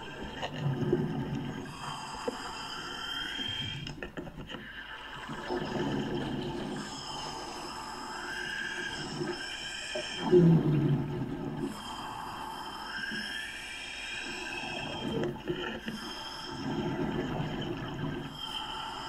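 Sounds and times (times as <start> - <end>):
rush of exhaled bubbles: 0.0 - 2.1, 4.6 - 7.6, 8.3 - 12.0, 14.4 - 19.0.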